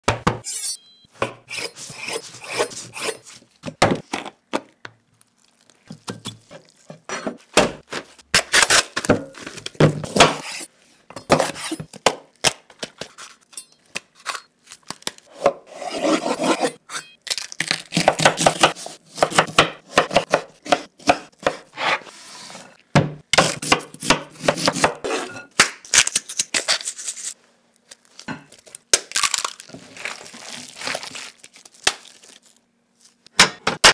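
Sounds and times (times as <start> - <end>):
knife chopping on wooden board: 18.0 - 22.0, 23.0 - 25.0.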